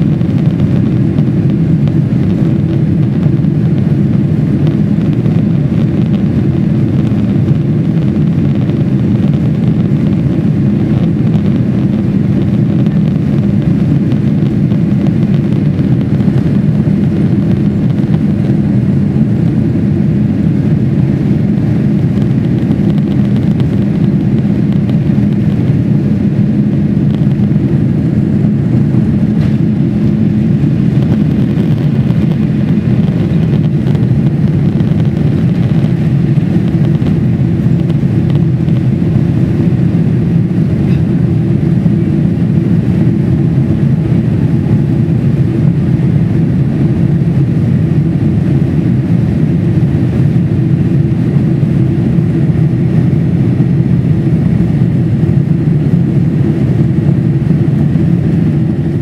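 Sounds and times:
jet engine cabin rumble: 0.0 - 59.0.

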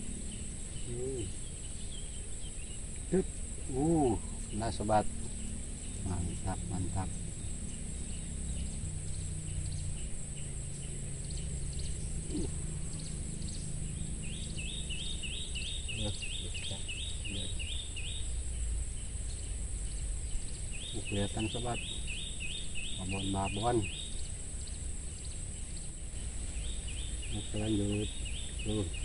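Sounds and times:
high-pitched insect drone: 0.0 - 29.0
bird short repeated call: 12.2 - 12.6.

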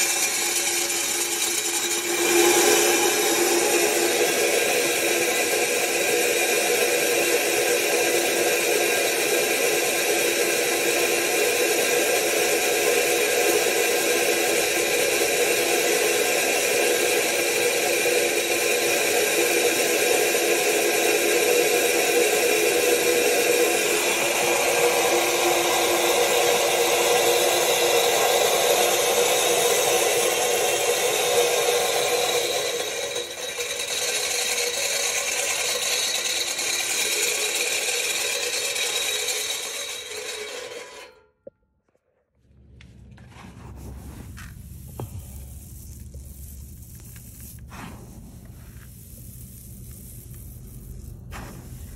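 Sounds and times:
ground corn pouring into basin: 0.0 - 40.2, 43.3 - 51.9
corn mill grinding: 0.0 - 41.2.

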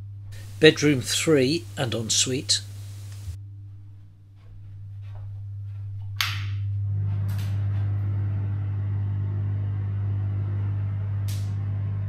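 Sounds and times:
extractor fan running: 0.0 - 3.4, 6.7 - 12.0.

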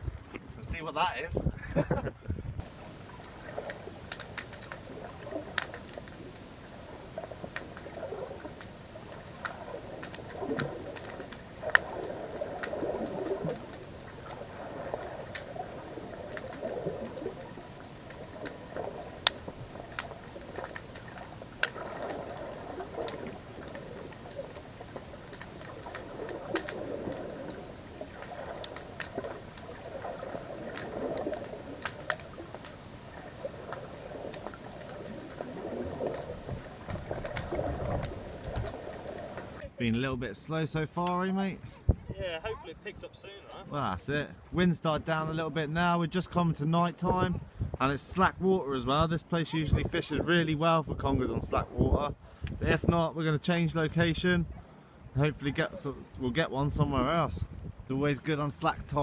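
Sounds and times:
muffled underwater water wash: 1.5 - 39.8, 47.0 - 53.1
sharp underwater clicks: 2.6 - 40.0.

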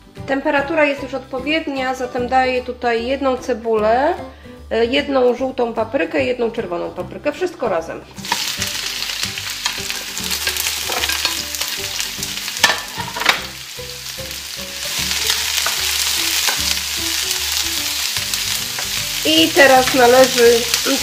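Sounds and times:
vegetables sizzling in frying pan: 8.2 - 21.0.

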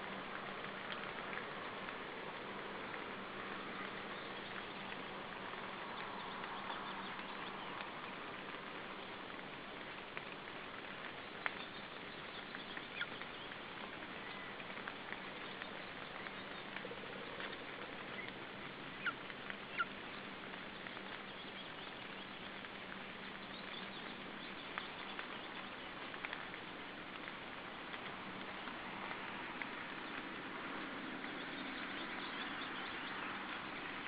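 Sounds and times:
steady outdoor hiss: 0.0 - 34.0.

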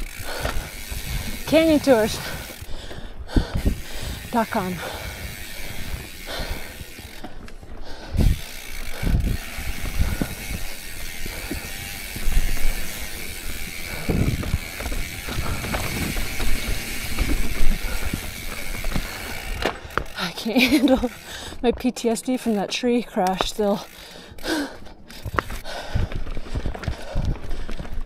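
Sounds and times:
bicycle freehub ratcheting: 0.0 - 27.9
bike thumping over rocks: 9.2 - 20.2.

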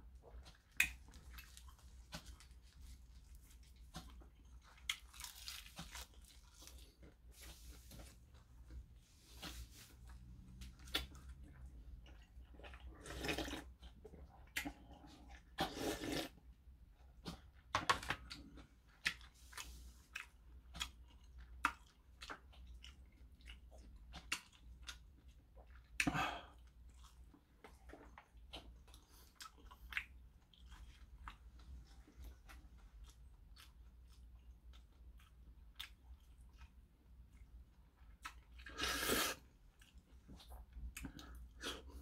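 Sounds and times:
person slurping broth: 13.0 - 13.6, 15.6 - 16.3, 38.7 - 39.4.

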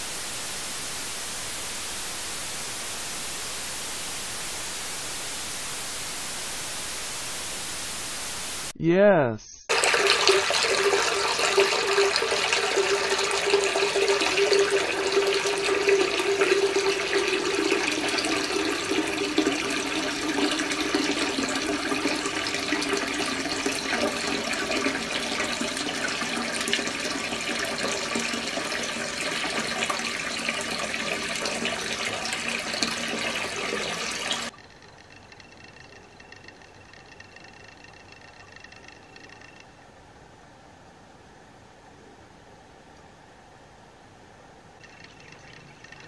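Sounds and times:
faint hum: 0.0 - 9.8, 34.5 - 46.0
tap water pouring into sink: 9.7 - 34.5, 44.8 - 46.0.

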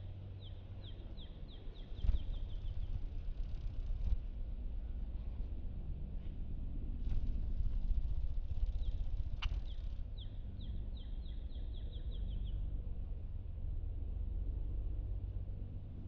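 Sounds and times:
low steady rumble: 0.0 - 16.0
small bird chirping: 8.6 - 12.4.

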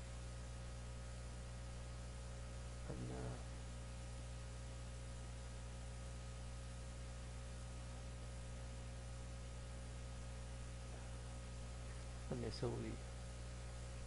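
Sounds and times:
electrical mains hum: 0.0 - 14.0
faint hiss: 2.8 - 3.6.

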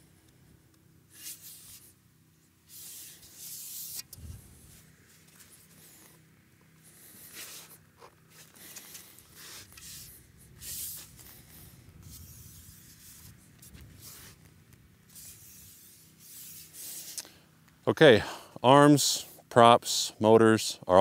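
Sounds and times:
hands rustling propeller blades: 1.1 - 17.8
short hissy brushes: 2.6 - 17.2.

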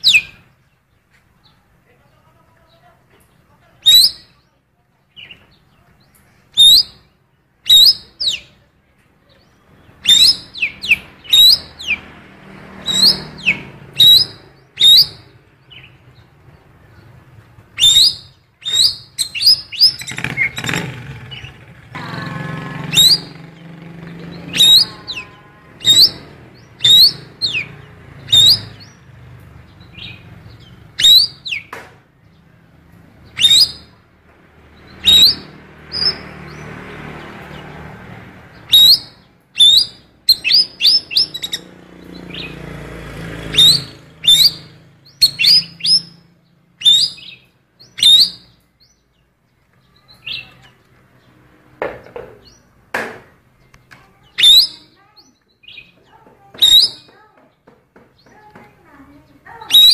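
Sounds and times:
songbird chirping: 0.0 - 59.9.

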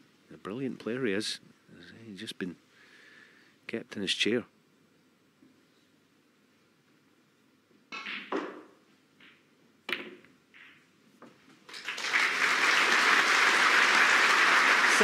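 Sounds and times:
cue striking snooker balls: 7.9 - 10.9
audience applause: 11.7 - 15.0.

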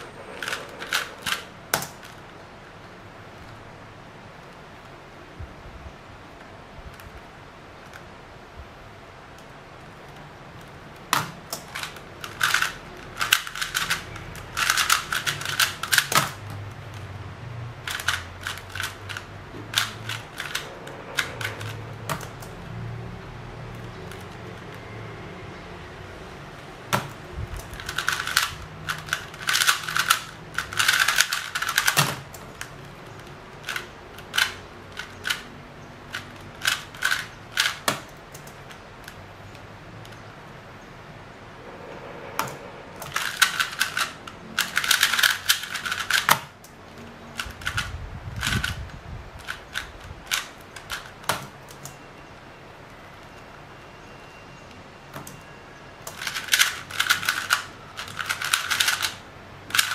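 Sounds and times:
rapid plastic clicking of puzzle cube: 0.0 - 2.3, 9.4 - 17.2, 17.8 - 22.6, 23.7 - 24.8, 26.6 - 40.2, 43.0 - 52.0, 56.0 - 59.9.

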